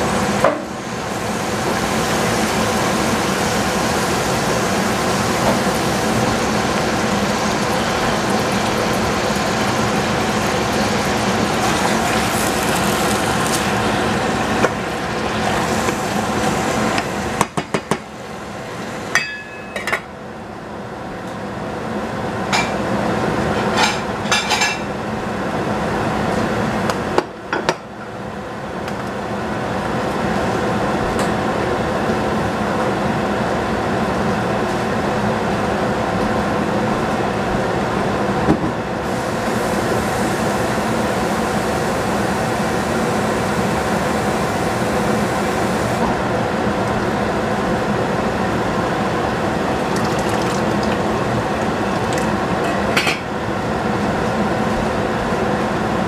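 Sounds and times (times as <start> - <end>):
vegetables sizzling in a saucepan: 0.0 - 17.5, 39.0 - 46.0
steady hum: 0.0 - 27.2, 28.2 - 56.0.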